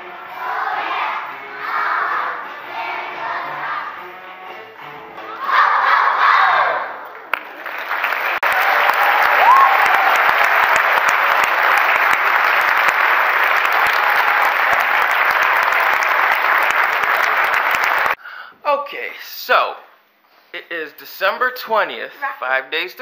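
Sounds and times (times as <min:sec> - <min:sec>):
audience applauding: 0:07.1 - 0:18.2
rising call from crowd: 0:08.4 - 0:18.2.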